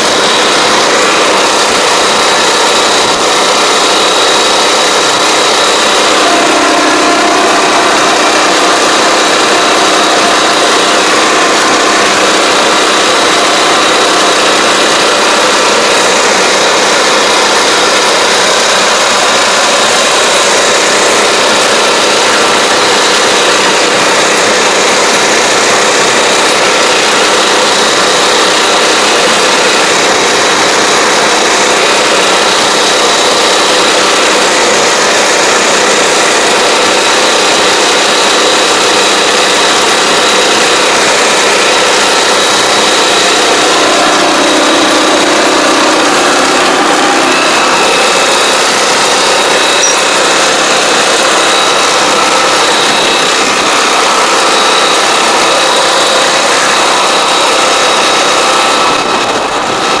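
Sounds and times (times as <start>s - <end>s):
small engine running: 0.0s - 60.0s.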